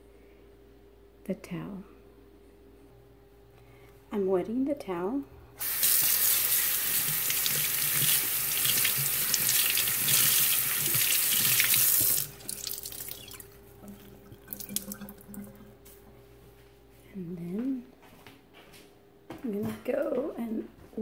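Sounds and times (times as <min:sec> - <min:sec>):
faucet stream onto rag: 0:05.6 - 0:13.2
wet rag being squeezed: 0:05.6 - 0:15.6.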